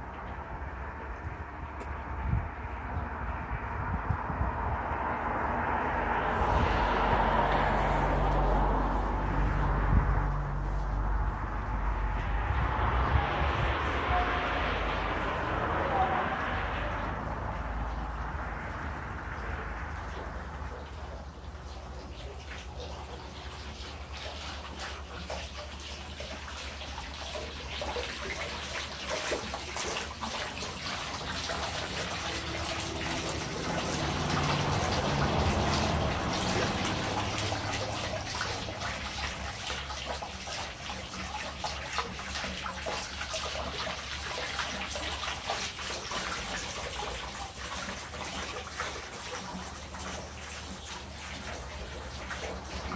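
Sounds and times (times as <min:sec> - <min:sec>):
water trickling into stone pool: 0:00.0 - 0:52.9.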